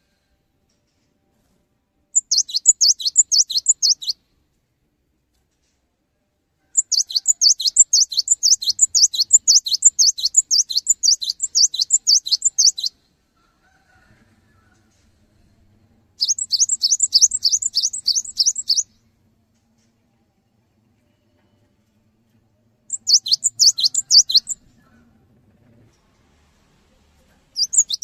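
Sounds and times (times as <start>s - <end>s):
bird singing high notes: 2.2s - 4.2s, 6.9s - 12.9s, 16.2s - 18.9s, 22.9s - 24.6s, 27.6s - 28.0s.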